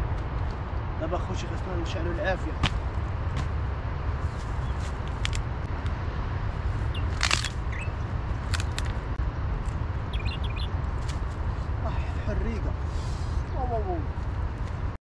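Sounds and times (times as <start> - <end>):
campfire clicks and snaps: 5.0 - 6.0, 7.0 - 9.8.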